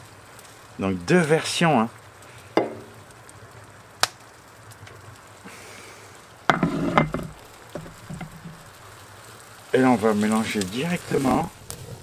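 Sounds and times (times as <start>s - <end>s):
food sizzling faintly: 0.0s - 12.0s
utensil knocking on cooking dish: 6.5s - 8.6s.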